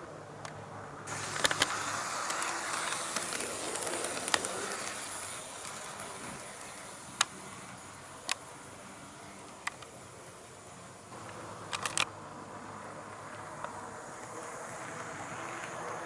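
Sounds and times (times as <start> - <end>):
sharp clicks: 0.4 - 5.9, 11.2 - 12.1
model train rumbling on track: 1.1 - 16.0.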